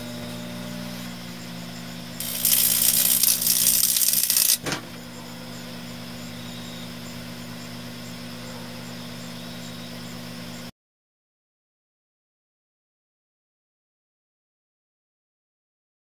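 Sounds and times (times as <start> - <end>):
microwave oven humming: 0.0 - 10.7
hissing crackle of arcing: 2.2 - 4.6.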